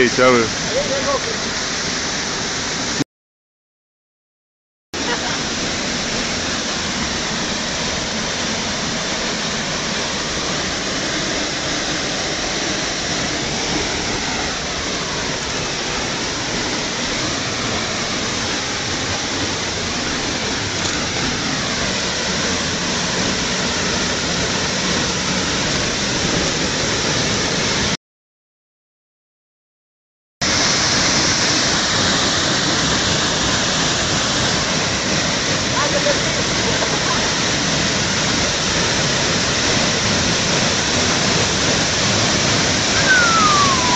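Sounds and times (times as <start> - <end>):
waterfall rushing into pool: 0.0 - 3.0, 5.0 - 28.0, 30.4 - 43.9.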